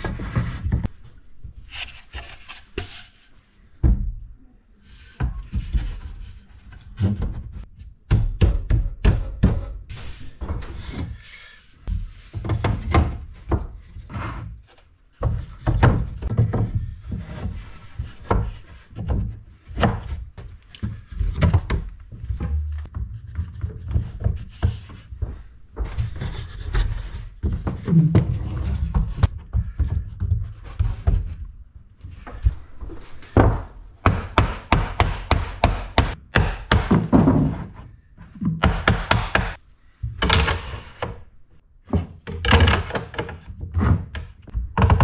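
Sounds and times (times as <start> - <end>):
wooden knocks and clatters: 11.9 - 14.2, 15.2 - 41.3, 41.9 - 45.0.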